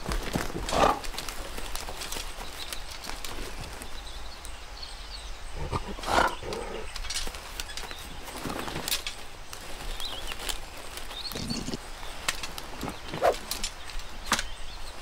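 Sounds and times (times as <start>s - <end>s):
faint bird chirps: 9.6s - 15.0s.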